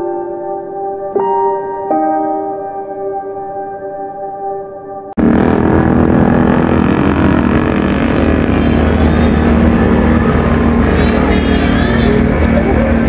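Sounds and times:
soft slow music: 0.0s - 5.4s
motorcycle engine running: 5.2s - 13.0s.

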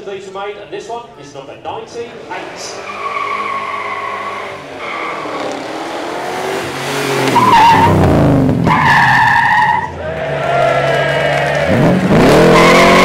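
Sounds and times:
supercar engines driving past: 1.6s - 8.7s
tyre squeal: 2.5s - 5.6s, 7.3s - 8.0s, 8.7s - 9.9s.

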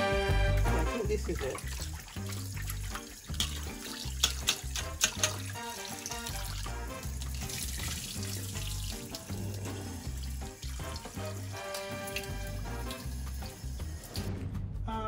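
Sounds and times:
background music with bass line: 0.0s - 15.0s
tap running into steel bowl: 3.3s - 6.6s.

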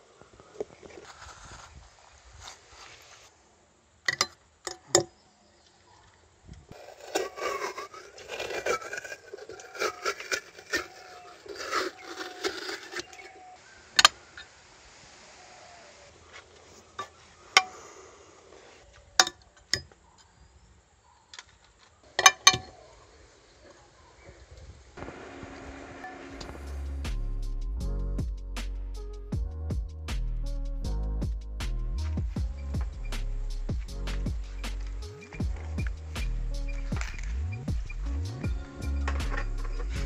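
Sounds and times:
wet scraping: 6.7s - 13.6s.

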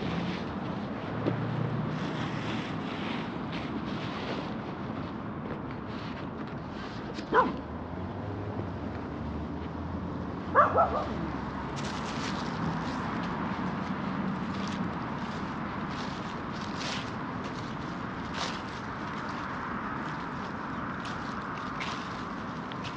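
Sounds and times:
steady background noise: 0.0s - 22.9s
dog barking: 7.3s - 7.6s, 10.5s - 11.2s.

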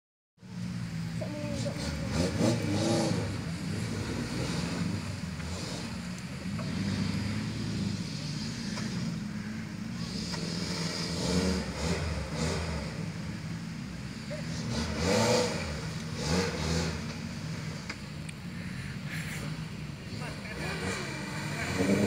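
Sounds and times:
off-road vehicle engine running: 0.4s - 22.0s
bystanders talking: 1.0s - 5.4s, 18.1s - 22.0s.

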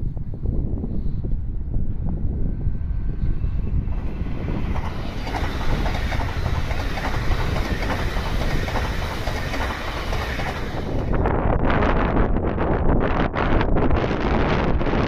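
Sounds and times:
wind rumble on microphone: 0.0s - 15.0s
electric train passing: 0.7s - 11.5s.

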